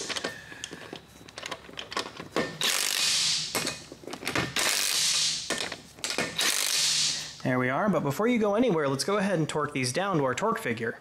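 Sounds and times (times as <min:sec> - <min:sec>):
impact wrench bursts: 0:02.5 - 0:07.4.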